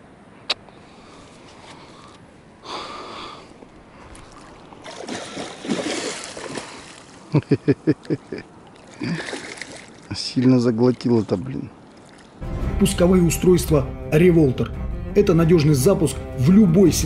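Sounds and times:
fish splashing in water: 4.0 - 7.3, 8.8 - 10.1.

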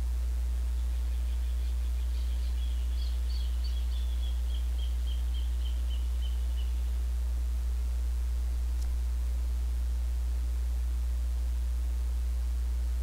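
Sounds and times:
steady low hum: 0.0 - 13.0
faint high chirps: 0.7 - 7.0.

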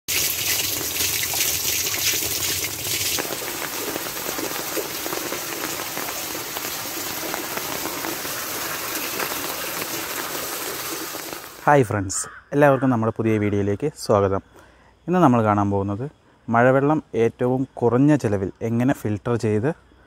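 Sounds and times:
water gushing and splashing into well: 0.0 - 11.7
water pouring onto gravel: 0.1 - 11.6.

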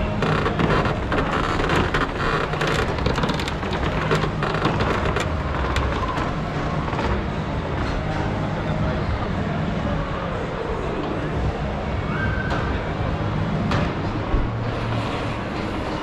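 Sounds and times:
dense crackling noise: 0.0 - 7.9.

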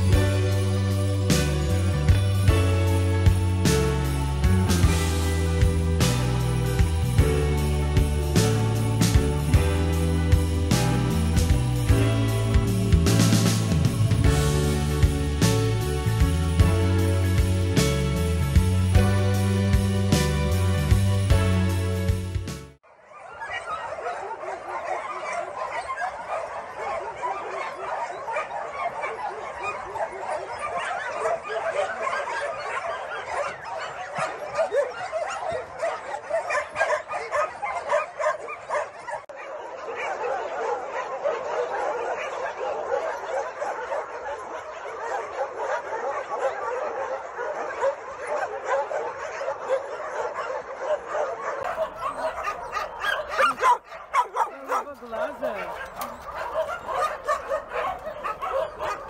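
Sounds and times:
many dogs barking and yelping: 0.0 - 6.0, 22.8 - 59.0.

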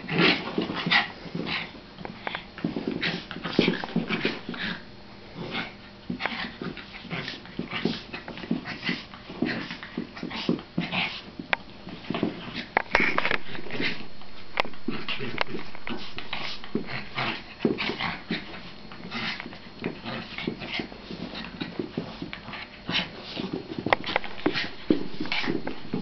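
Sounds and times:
small dogs growling and yipping: 2.7 - 11.3, 14.8 - 26.0.

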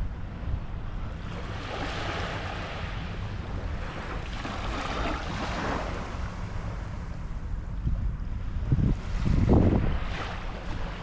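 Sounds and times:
steady low rumble: 0.0 - 11.0
gentle waves washing on sand: 1.1 - 7.2, 8.6 - 11.0.

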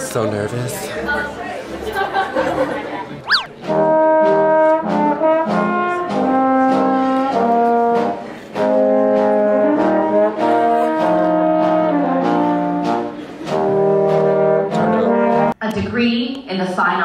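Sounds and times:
brass ensemble playing held chords: 3.5 - 15.6.

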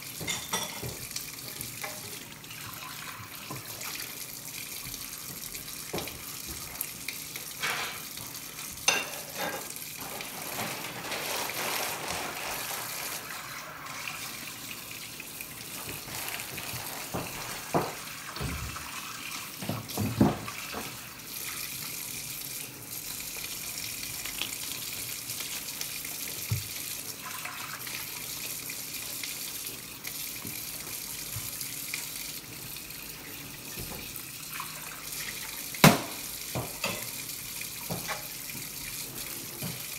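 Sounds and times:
tap water running into sink: 0.0 - 39.9
dishes clinking and knocking: 0.2 - 1.1, 8.8 - 9.7, 19.6 - 20.9, 35.8 - 37.1
dish being scrubbed: 7.6 - 14.2, 15.7 - 21.0, 37.8 - 39.9.

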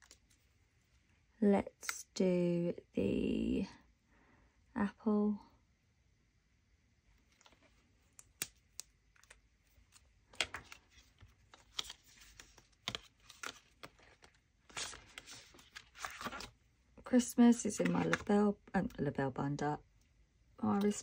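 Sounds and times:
plastic pockets and paper rustling: 7.2 - 16.6, 17.5 - 18.3.

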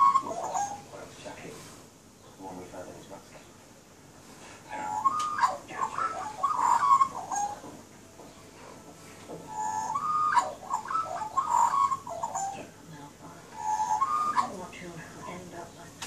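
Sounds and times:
magpies carolling: 0.0 - 1.1, 4.6 - 16.0.

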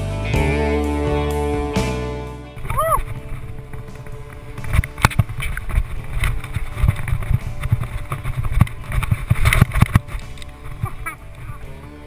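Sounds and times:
wind buffeting microphone: 2.6 - 12.0.

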